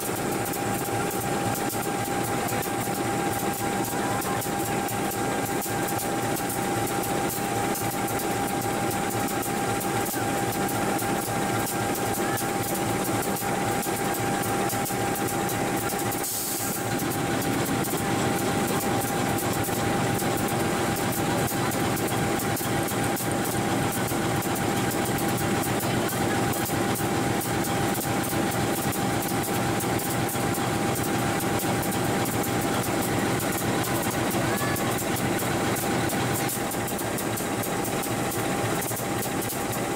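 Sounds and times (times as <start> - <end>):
train wagons rumbling on track: 0.0 - 39.9.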